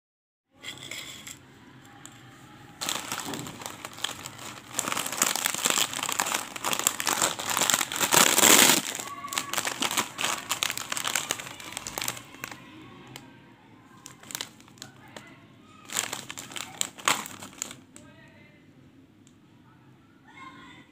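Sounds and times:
mesh bag rustling: 2.8 - 12.6, 14.0 - 15.2, 15.9 - 17.8
foil packets crinkling: 2.8 - 12.7, 14.0 - 18.0.

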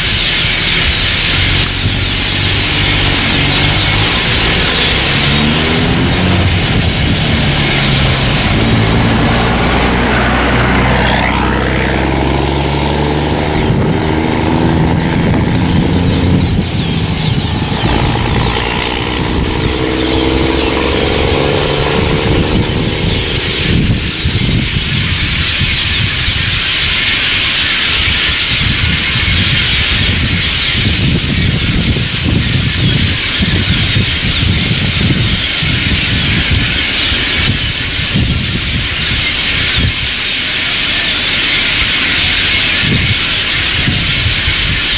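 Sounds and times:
flock of birds chattering: 0.0 - 44.9
vehicle engine humming: 0.0 - 44.9.

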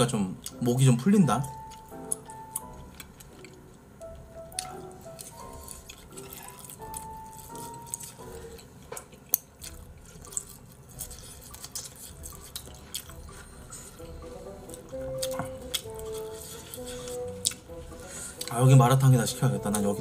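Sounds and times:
soft background music: 0.0 - 20.0
wet mouth sounds: 4.5 - 18.5.

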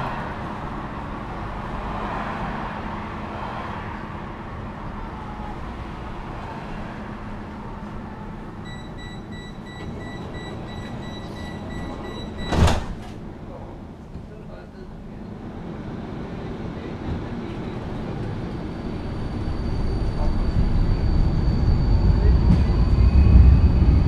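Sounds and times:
tram equipment humming: 0.0 - 24.0.

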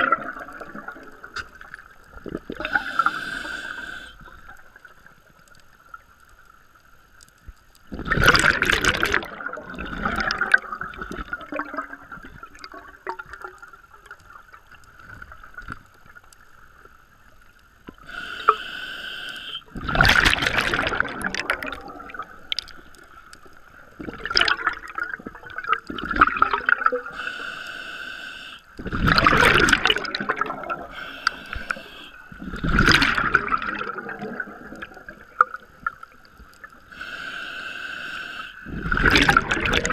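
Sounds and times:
exhaled bubbles rushing: 0.0 - 2.8, 7.9 - 13.6, 19.7 - 22.8, 24.0 - 27.1, 28.8 - 31.0, 32.4 - 36.0, 38.6 - 39.9
regulator hissing inhales: 2.6 - 4.2, 18.0 - 19.7, 27.1 - 28.7, 30.9 - 32.3, 36.9 - 38.7
faint steady whine: 11.9 - 19.9, 27.1 - 29.0.

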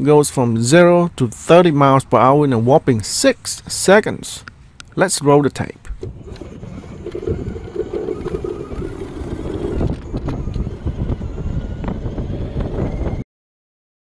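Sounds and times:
low road rumble: 0.0 - 13.2
wind buffeting microphone: 5.9 - 13.2
electric scooter accelerating: 6.0 - 13.2.

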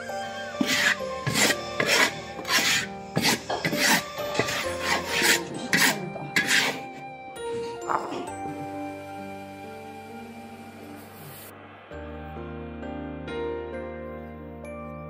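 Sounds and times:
metal spatula scraping wok: 0.5 - 7.0.

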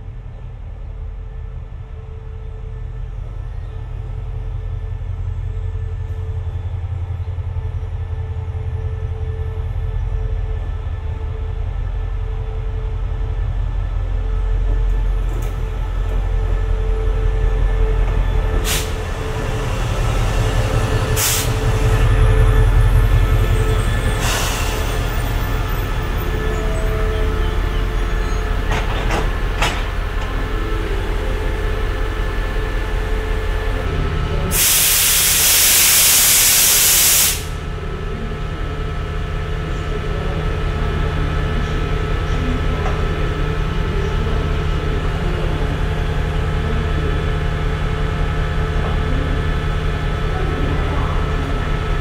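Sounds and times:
diesel train engine idling: 0.0 - 52.0
compressed air hissing: 21.2 - 21.6, 34.5 - 37.6.

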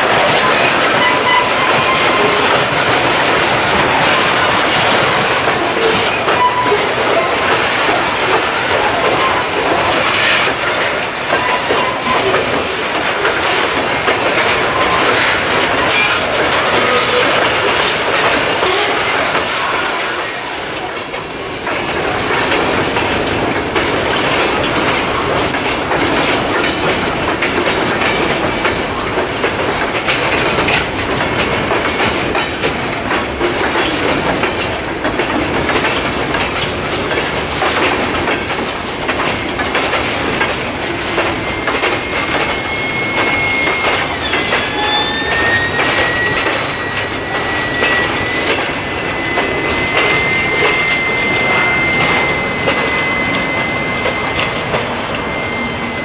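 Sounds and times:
train wheels clattering on rails: 0.0 - 56.0
high-pitched wheel squeal: 0.1 - 10.2, 37.7 - 56.0.

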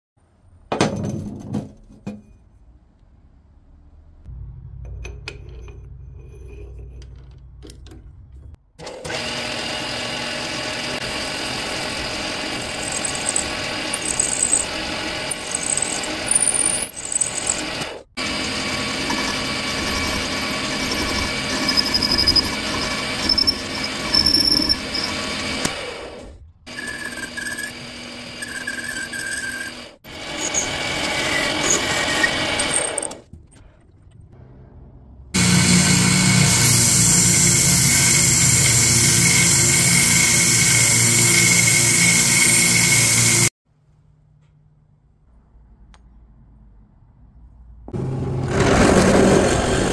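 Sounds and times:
lathe motor whine: 9.0 - 16.4, 17.0 - 32.7
hiss of tool cutting wood: 35.4 - 43.5.

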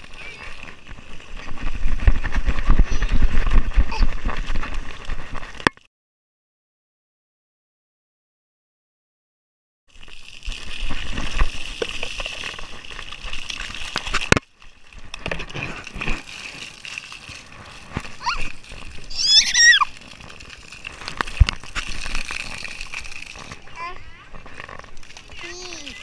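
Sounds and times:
water drips and splats: 0.0 - 5.6, 9.9 - 26.0
water jets spraying: 10.0 - 24.1
toddler squealing: 19.1 - 19.9.

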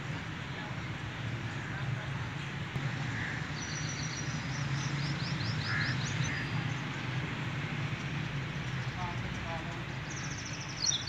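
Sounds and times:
small bird chirping: 10.0 - 11.0.

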